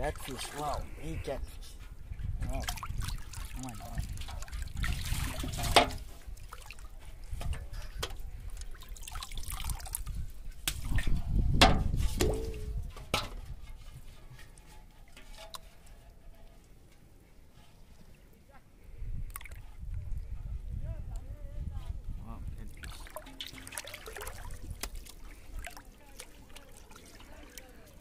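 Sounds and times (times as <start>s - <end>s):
water splashing and dripping: 2.4s - 16.9s, 19.3s - 19.9s, 22.6s - 28.0s
knocks against metal basin: 10.7s - 13.8s.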